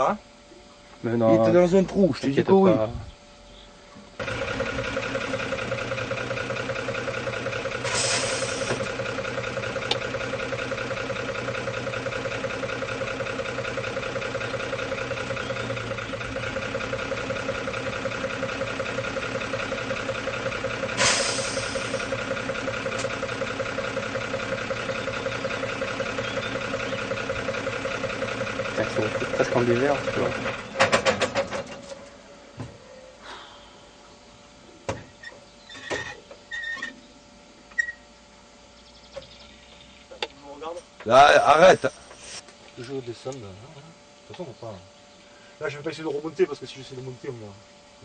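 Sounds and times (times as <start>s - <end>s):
truck engine idling: 0.0s - 48.0s
air hiss: 7.8s - 8.8s, 20.9s - 22.1s.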